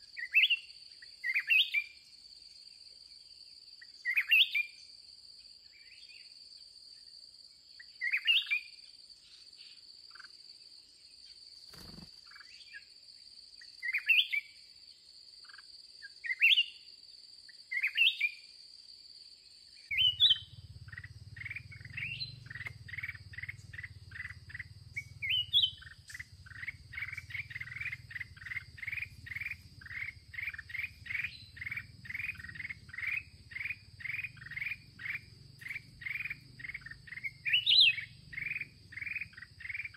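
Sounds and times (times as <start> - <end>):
high insect drone: 0.0 - 39.9
bulbuls calling: 19.9 - 39.9.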